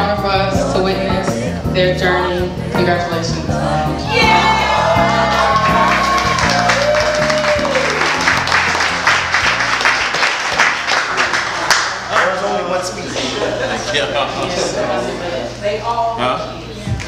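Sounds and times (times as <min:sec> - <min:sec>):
music with steady bass line: 0:00.0 - 0:10.9
small group applauding: 0:04.4 - 0:12.6.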